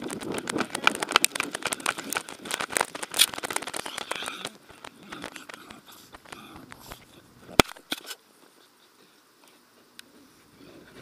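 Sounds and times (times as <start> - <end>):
camera harness rattling and knocking: 0.0 - 6.4.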